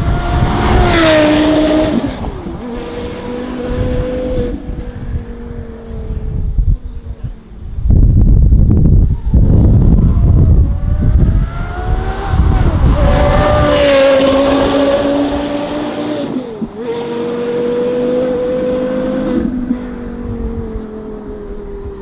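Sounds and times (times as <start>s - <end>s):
sports car engine revving: 10.1s - 21.3s.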